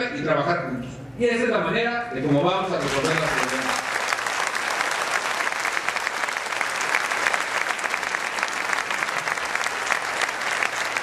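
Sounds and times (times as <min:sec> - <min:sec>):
audience applauding: 0:02.8 - 0:11.0.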